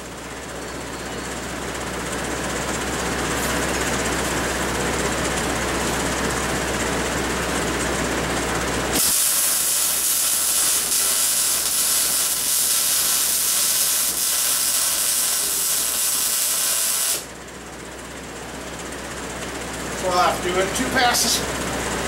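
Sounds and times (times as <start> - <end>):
welding arc hissing: 9.0 - 17.3.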